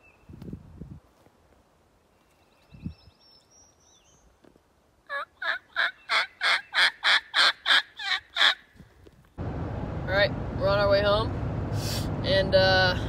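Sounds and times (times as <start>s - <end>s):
turkey call yelping: 5.1s - 8.7s.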